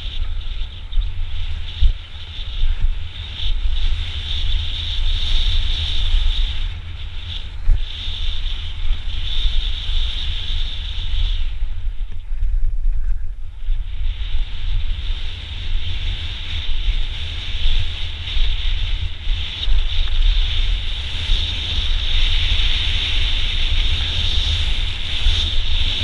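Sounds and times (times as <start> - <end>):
bike rattling over gravel: 0.0 - 26.0
high hiss: 0.0 - 26.0
wind buffeting microphone: 0.0 - 26.0.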